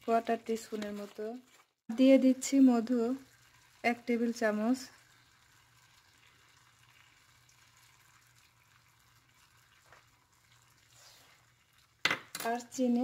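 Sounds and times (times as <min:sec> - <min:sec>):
sauce sizzling in a pan: 0:02.0 - 0:12.1.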